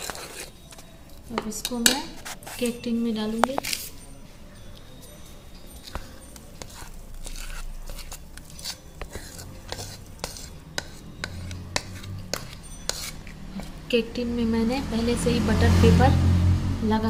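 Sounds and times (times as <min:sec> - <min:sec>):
utensil scraping metal tin: 0:00.0 - 0:00.8, 0:01.5 - 0:04.0, 0:06.6 - 0:13.8.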